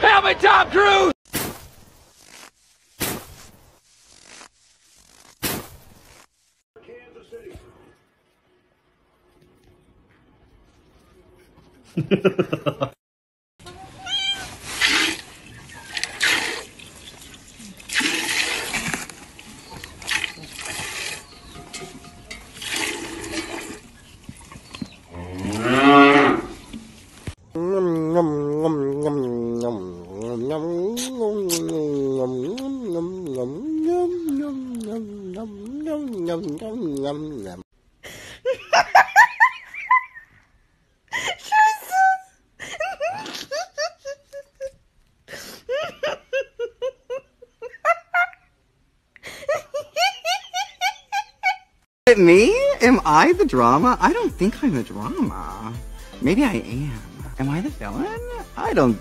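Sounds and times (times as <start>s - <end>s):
milk streams hissing into pail: 14.7s - 15.4s, 16.0s - 16.8s
cow mooing: 25.2s - 26.6s.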